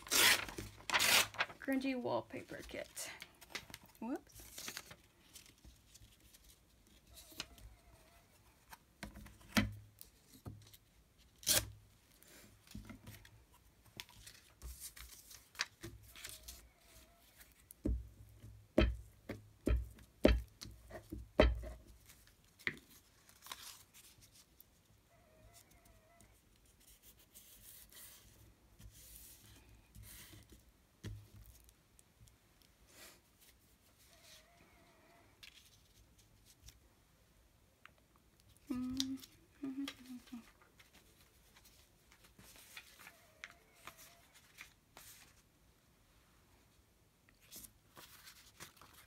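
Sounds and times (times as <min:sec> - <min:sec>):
scissors cutting paper: 0:00.0 - 0:01.4
paper tearing: 0:00.0 - 0:01.5.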